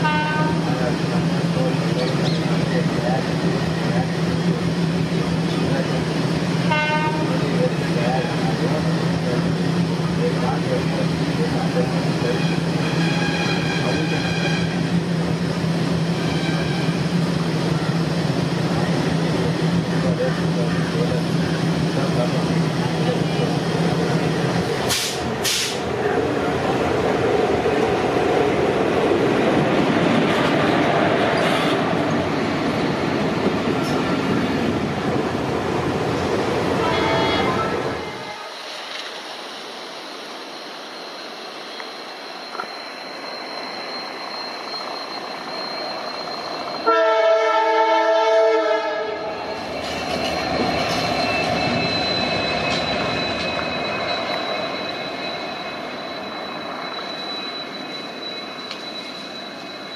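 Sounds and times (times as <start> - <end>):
air horn blast: 46.9 - 49.3.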